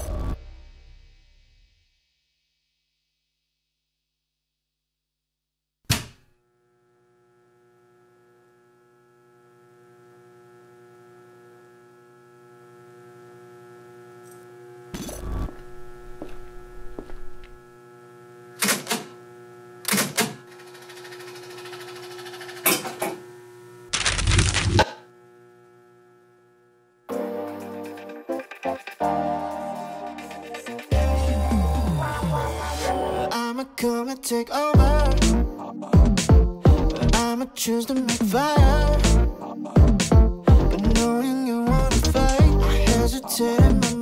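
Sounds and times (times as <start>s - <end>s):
jukebox switching on thunk: 5.9s - 6.3s
steady electrical hum: 6.4s - 28.0s.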